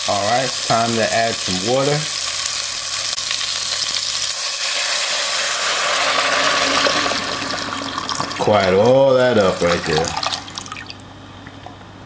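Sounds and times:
meat sizzling in butter: 0:00.0 - 0:08.8.

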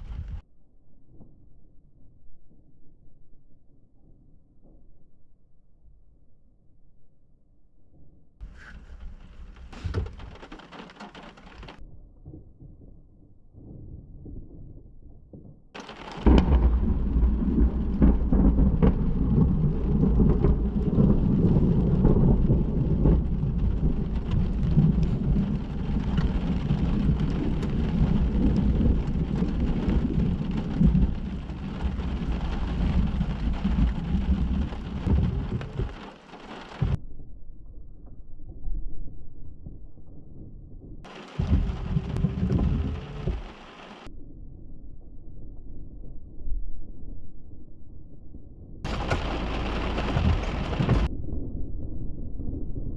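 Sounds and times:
thunder crack and rumble: 0:00.0 - 0:00.4, 0:08.4 - 0:47.7, 0:48.3 - 0:52.9
rain falling: 0:08.4 - 0:11.8, 0:15.8 - 0:37.0, 0:41.1 - 0:44.1, 0:48.9 - 0:51.1.

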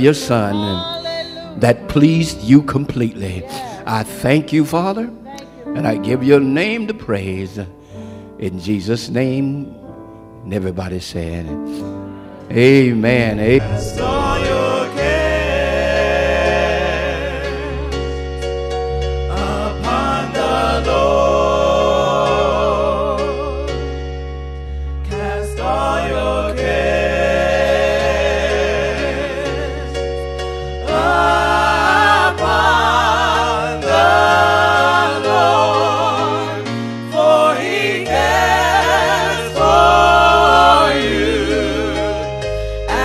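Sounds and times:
gospel singing with vibrato: 0:00.0 - 0:04.9, 0:11.7 - 0:43.0
deep bass: 0:13.1 - 0:15.6.

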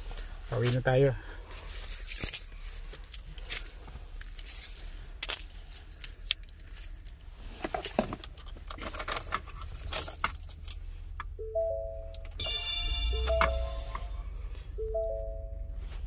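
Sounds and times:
keys jingling: 0:01.7 - 0:07.2, 0:08.8 - 0:10.8, 0:13.2 - 0:14.1
steady low hum: 0:10.4 - 0:16.0.

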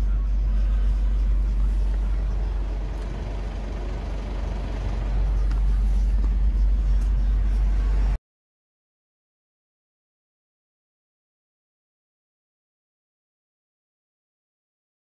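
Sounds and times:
truck engine and road rumble: 0:00.0 - 0:08.2.

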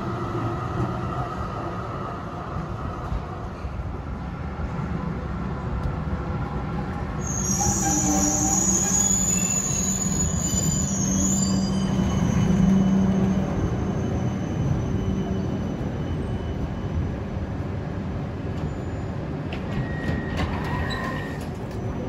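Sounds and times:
tram wheel squeal: 0:07.2 - 0:17.6, 0:18.4 - 0:22.0.

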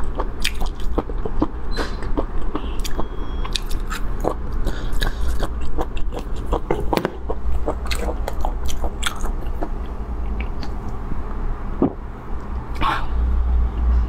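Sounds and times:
chewing and crunching: 0:00.0 - 0:10.8
low steady hum: 0:00.0 - 0:14.0
wet mouth clicks: 0:00.4 - 0:11.0.

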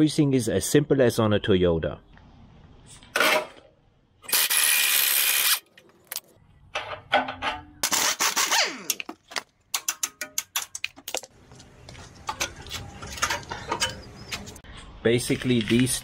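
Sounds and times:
sharp metallic clicks and knocks: 0:08.9 - 0:11.3.

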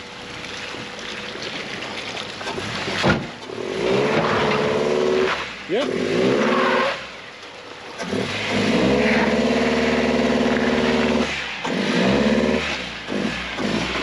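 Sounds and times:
car engine revving under load: 0:02.4 - 0:14.0.

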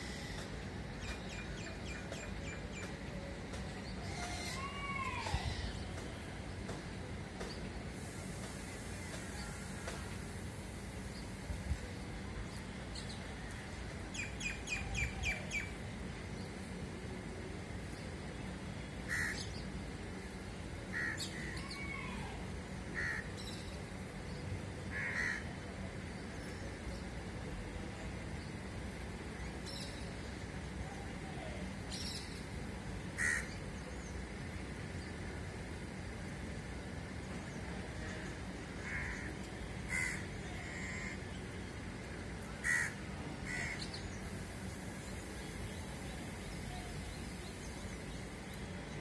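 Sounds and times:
low background noise: 0:00.0 - 0:49.0
crows cawing: 0:19.1 - 0:19.4, 0:23.0 - 0:23.3, 0:24.9 - 0:25.5, 0:33.2 - 0:33.6, 0:38.8 - 0:41.2, 0:42.6 - 0:43.8.

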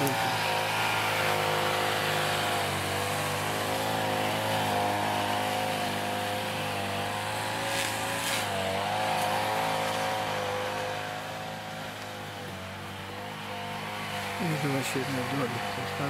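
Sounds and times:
string trimmer engine running: 0:00.0 - 0:16.0.

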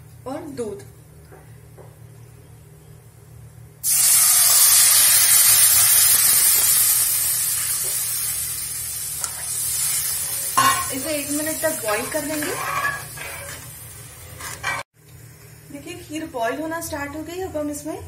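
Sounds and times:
milk sizzling in hot fat: 0:03.8 - 0:14.9.

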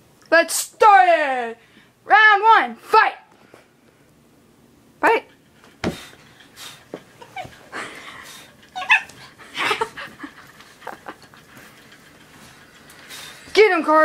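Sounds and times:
bedding rustling: 0:05.5 - 0:14.0
dog giving high-pitched cries: 0:08.6 - 0:09.4.

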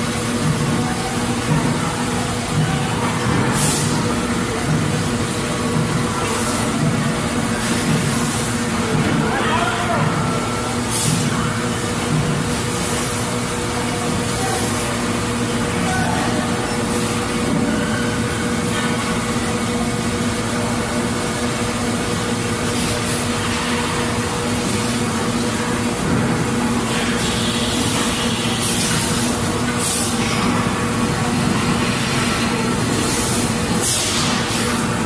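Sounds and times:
factory machinery humming: 0:00.0 - 0:35.0.

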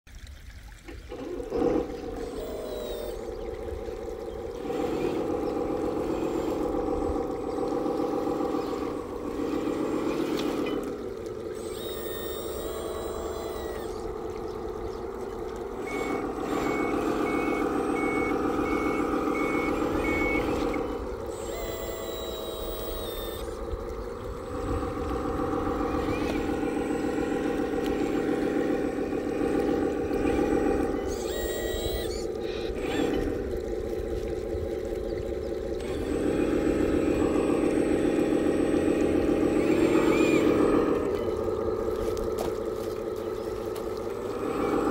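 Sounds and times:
toy truck engine drone: 0:01.1 - 0:44.9
reversing beeper: 0:15.7 - 0:23.6, 0:30.2 - 0:32.3.

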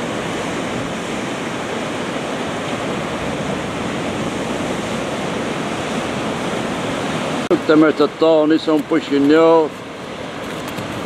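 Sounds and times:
ocean surf breaking on rocks: 0:00.0 - 0:11.0.

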